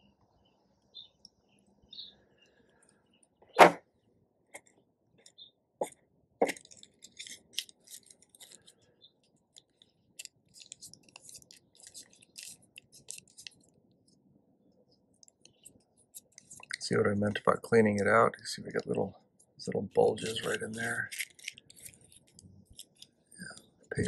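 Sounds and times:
tissue paper crinkling: 6.6s - 8.8s, 9.6s - 13.7s.

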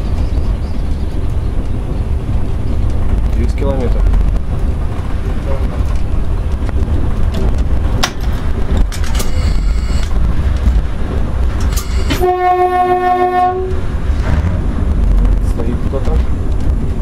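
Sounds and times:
train running low rumble: 0.0s - 17.0s
train horn: 11.7s - 13.8s.

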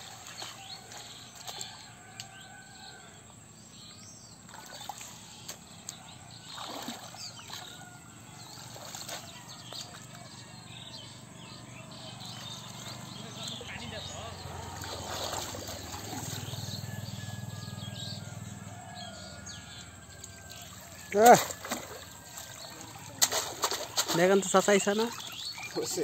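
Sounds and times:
muddy water splashing: 0.0s - 2.0s, 4.4s - 10.4s, 12.0s - 17.8s, 19.8s - 26.0s
birds chirping: 0.0s - 26.0s.

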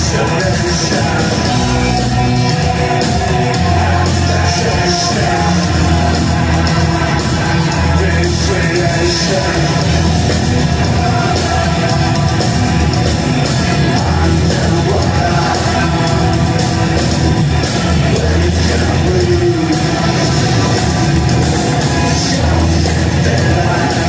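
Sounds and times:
electro-industrial band playing: 0.0s - 24.0s
vocals: 0.0s - 24.0s.

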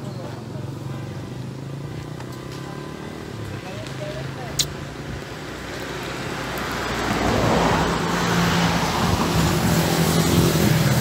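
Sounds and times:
vehicle engine and tyre noise: 0.0s - 11.0s.

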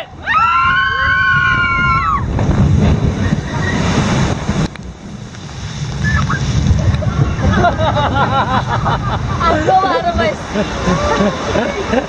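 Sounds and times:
water rushing: 0.0s - 12.0s
riders screaming: 0.2s - 2.4s
wind rushing on microphone: 0.2s - 12.0s.

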